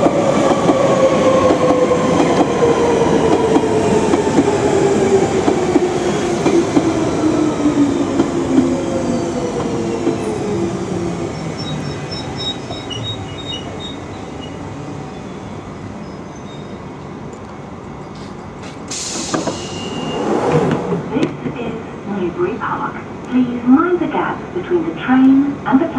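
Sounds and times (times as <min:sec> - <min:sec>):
train braking with motor whine: 0:08.0 - 0:17.0, 0:18.0 - 0:21.2
brake squeals: 0:11.4 - 0:16.9.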